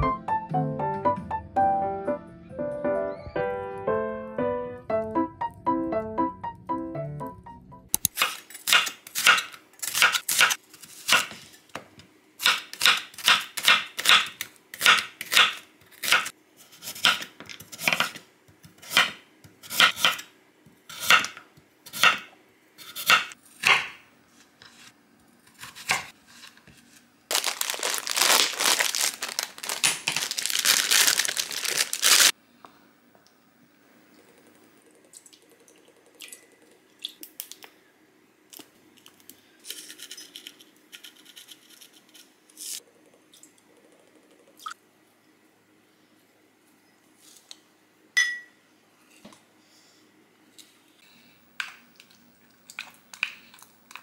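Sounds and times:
dense crinkling and rustling: 0:26.8 - 0:32.3.

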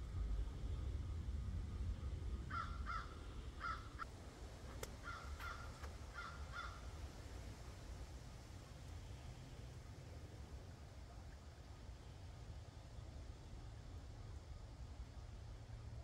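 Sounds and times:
steady low rumble: 0:00.0 - 0:16.0
bird calling: 0:02.5 - 0:04.0, 0:05.0 - 0:07.0.

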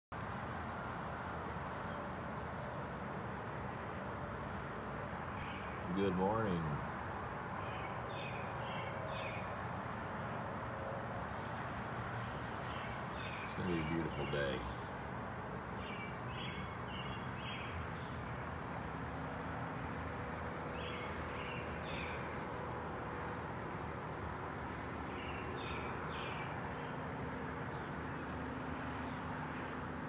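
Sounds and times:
distant road traffic hum: 0:00.1 - 0:30.0
birds calling: 0:05.2 - 0:07.0, 0:07.6 - 0:09.6, 0:12.6 - 0:15.0, 0:15.8 - 0:18.3, 0:20.7 - 0:22.8, 0:25.1 - 0:27.9.

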